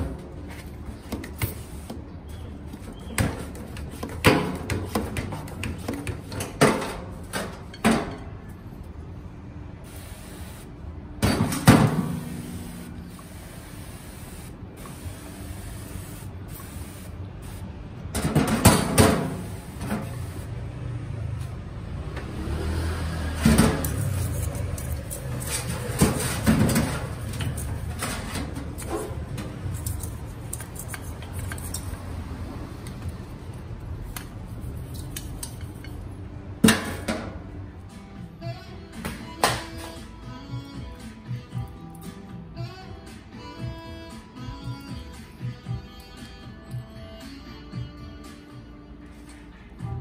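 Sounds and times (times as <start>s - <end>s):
cleaner spraying: 9.9s - 10.7s, 12.2s - 17.6s.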